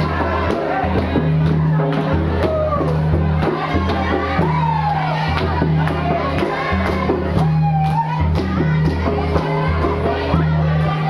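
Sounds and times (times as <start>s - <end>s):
large crowd noise: 0.0s - 11.0s
lively music with singing: 0.0s - 11.0s.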